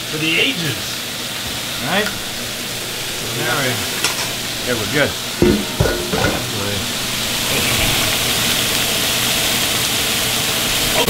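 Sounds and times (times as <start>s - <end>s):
knocks: 2.1s - 8.6s.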